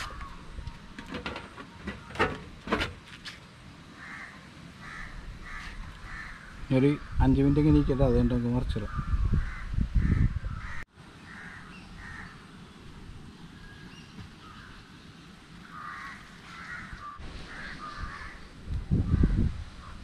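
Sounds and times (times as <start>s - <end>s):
crows cawing: 0.0s - 0.5s, 4.0s - 7.8s, 8.8s - 12.5s, 15.6s - 18.5s, 19.1s - 20.0s.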